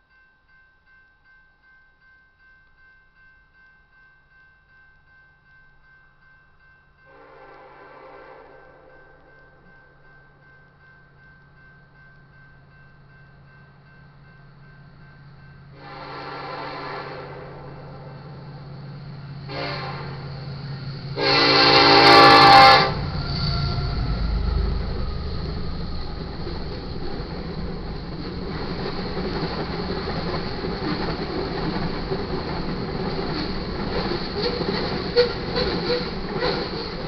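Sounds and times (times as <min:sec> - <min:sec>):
locomotive air horn blast: 0:07.1 - 0:08.9, 0:15.8 - 0:17.8, 0:19.5 - 0:20.3, 0:21.2 - 0:24.0
locomotives rumbling past: 0:15.8 - 0:37.0
freight cars rolling: 0:19.4 - 0:37.0.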